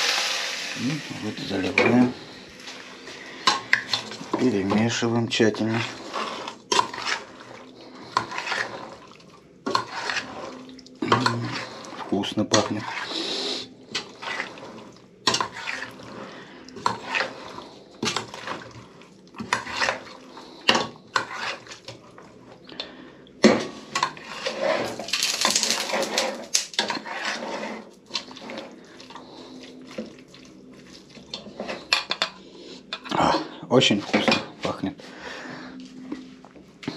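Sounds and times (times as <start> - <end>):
metal spoon scraping steel pot: 21.1 - 21.7, 25.8 - 28.6.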